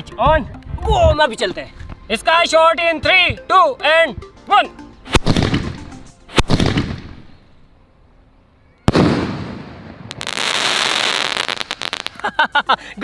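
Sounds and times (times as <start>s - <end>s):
firework bangs: 6.4s - 7.2s, 8.9s - 12.3s
firework hissing crackle: 8.9s - 12.3s.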